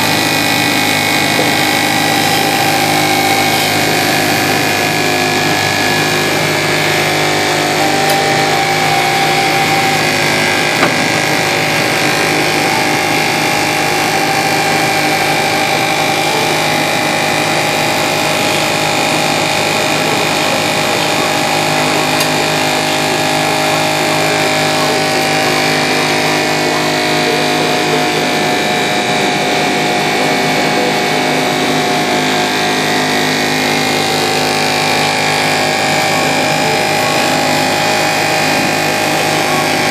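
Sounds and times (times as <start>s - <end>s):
pump humming: 0.0s - 39.9s.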